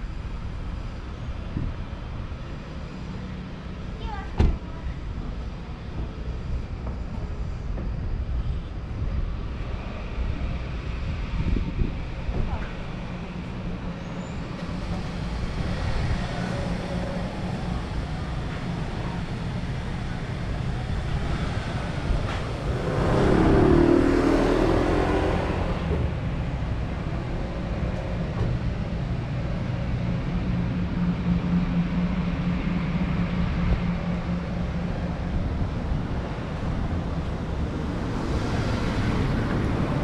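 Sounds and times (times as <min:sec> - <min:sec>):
road traffic: 0:00.0 - 0:40.0
vehicle passing close: 0:20.7 - 0:28.6.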